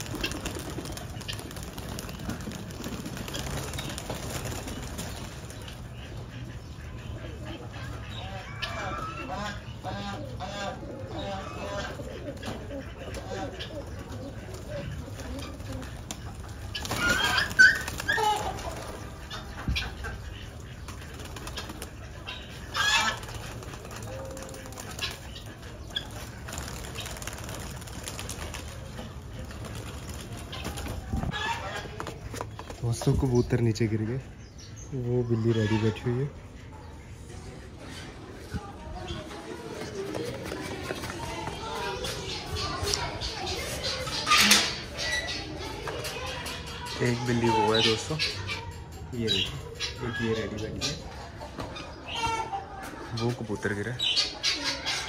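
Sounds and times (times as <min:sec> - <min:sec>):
wingbeats fluttering: 0:00.0 - 0:06.6, 0:12.2 - 0:33.3, 0:37.8 - 0:46.9
pigeons cooing: 0:00.0 - 0:55.0.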